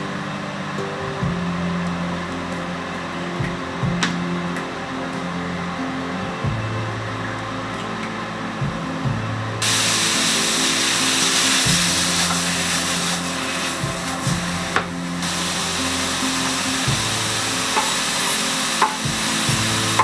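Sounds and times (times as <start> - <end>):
background music: 0.0 - 20.0
meat sizzling in a frying pan: 9.6 - 14.5, 15.2 - 20.0.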